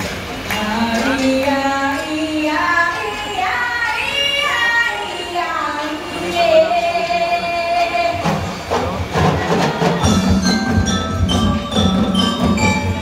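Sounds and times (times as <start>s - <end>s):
high singing voice with music: 0.5s - 8.6s.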